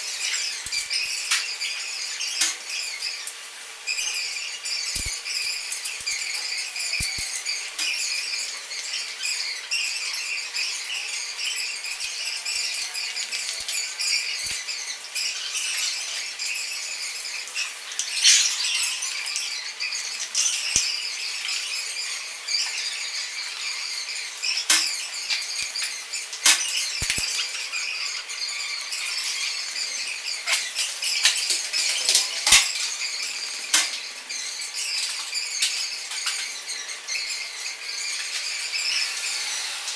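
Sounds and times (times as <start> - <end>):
glass shards clinking on floor: 18.0 - 19.6.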